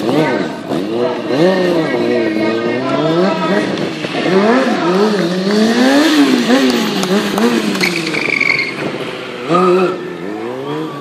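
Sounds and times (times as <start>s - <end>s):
motorcycle engine revving: 0.0s - 11.0s
high squeal: 7.7s - 8.9s.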